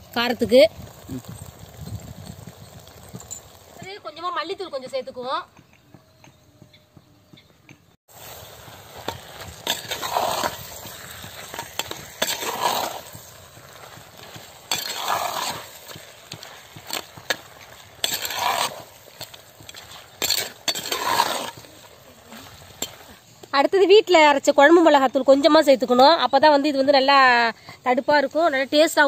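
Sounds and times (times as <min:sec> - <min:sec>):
meat sizzling in oil: 0:00.0 - 0:04.0, 0:08.1 - 0:23.5
metal ladle scraping clay pot: 0:09.0 - 0:23.2.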